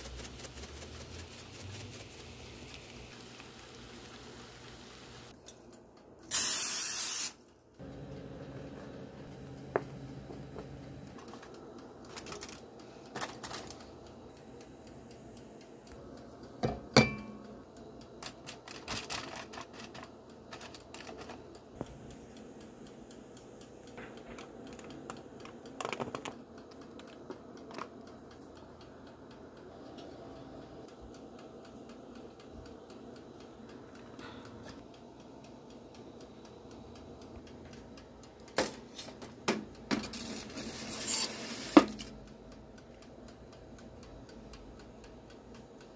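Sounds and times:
foil taps and crinkles: 11.2s - 13.9s, 18.2s - 21.5s.

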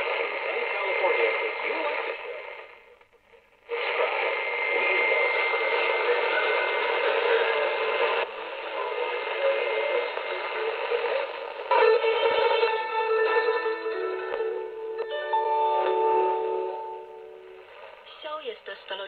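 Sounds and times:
hissy radio band noise: 0.0s - 19.0s.

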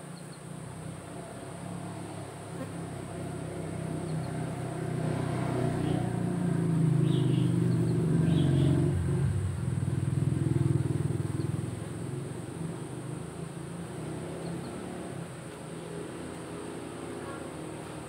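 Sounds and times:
vehicle engine passing by: 0.5s - 18.0s.

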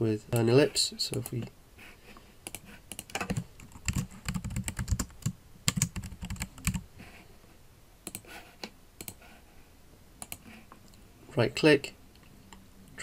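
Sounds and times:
typing on computer keyboard: 2.5s - 6.8s, 10.2s - 10.4s.

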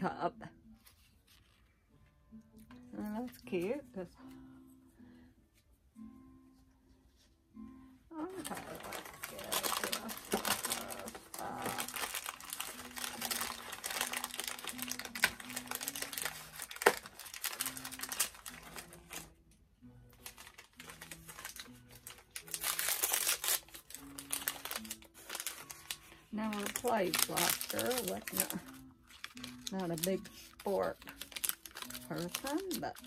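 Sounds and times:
faint background music: 0.0s - 33.0s
plastic packaging crinkling: 8.1s - 19.3s, 20.1s - 33.0s.

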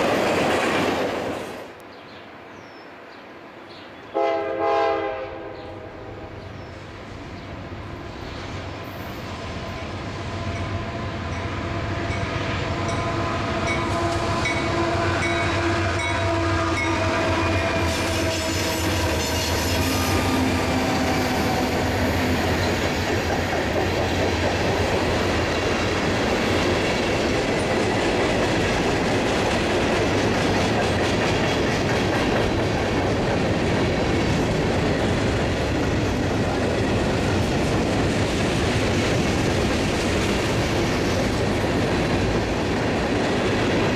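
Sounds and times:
train wheels clattering on rail joints: 0.0s - 1.8s, 16.8s - 43.9s
diesel locomotive air horn: 4.1s - 6.4s, 12.8s - 21.8s.

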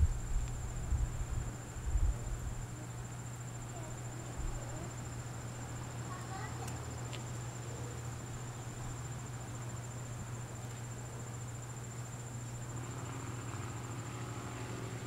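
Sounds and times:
constant low hum: 0.0s - 15.0s
faint drone: 0.0s - 15.0s
insects chirring: 0.0s - 15.0s.

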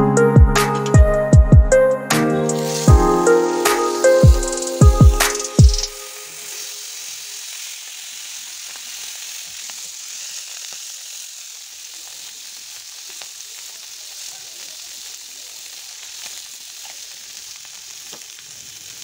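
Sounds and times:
music with bass drops: 0.0s - 6.0s
fish sizzling in hot oil: 2.5s - 19.0s.

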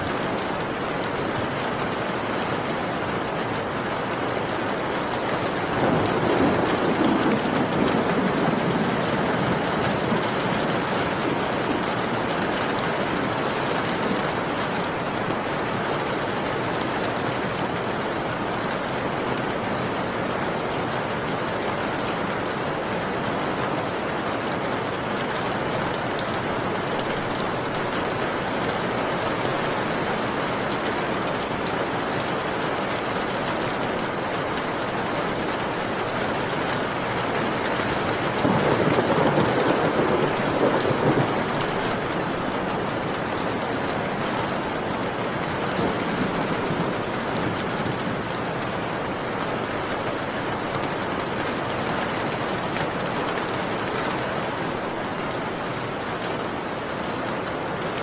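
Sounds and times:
steady rain falling: 0.0s - 58.0s
thunder rumbling: 5.4s - 12.6s, 37.5s - 49.8s.

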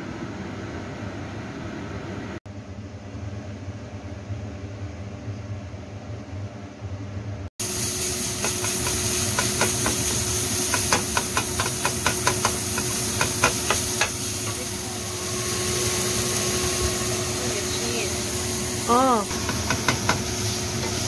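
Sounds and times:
minced meat sizzling in oil: 7.6s - 21.0s.

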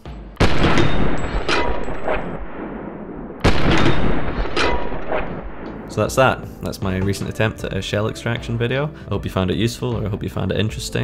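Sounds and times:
gunshots with echoing tail: 0.0s - 6.2s.

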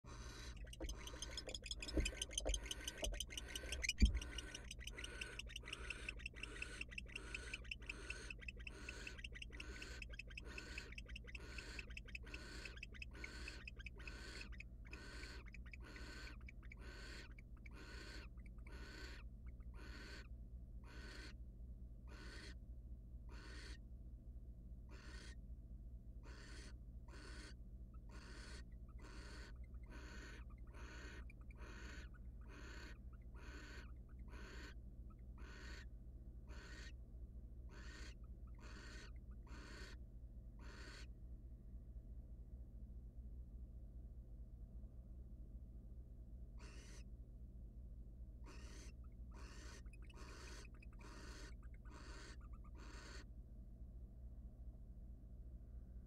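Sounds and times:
barn owl raspy hissing calls: 0.0s - 20.3s, 20.9s - 21.4s, 22.1s - 22.6s, 23.3s - 23.8s, 24.9s - 25.4s, 26.2s - 34.8s, 35.4s - 35.9s, 36.5s - 37.0s, 37.7s - 40.0s, 40.6s - 41.1s, 46.6s - 47.0s, 48.5s - 53.3s
low electrical hum: 0.0s - 56.0s.

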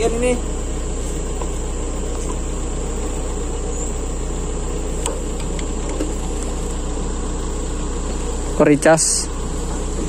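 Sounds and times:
diesel engine idling: 0.0s - 10.0s.

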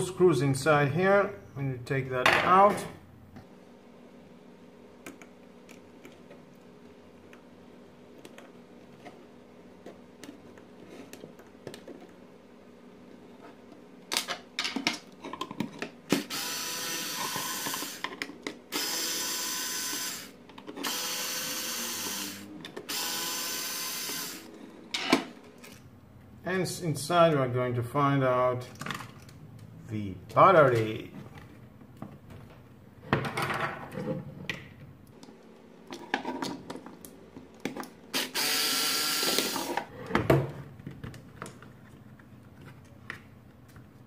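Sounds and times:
drill-driver motor running: 16.2s - 18.0s, 18.7s - 24.5s, 38.1s - 39.8s.

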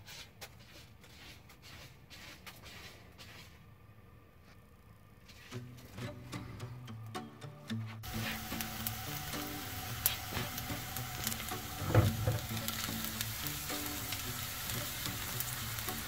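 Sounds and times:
garlic sizzling in oil: 8.0s - 16.0s
low thump: 11.8s - 12.5s.

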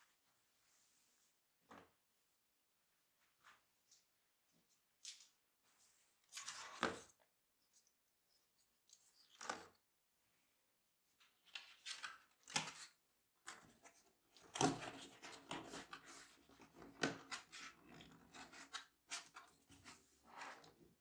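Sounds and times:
cardboard and paper rustling: 5.1s - 7.2s, 11.4s - 20.7s.

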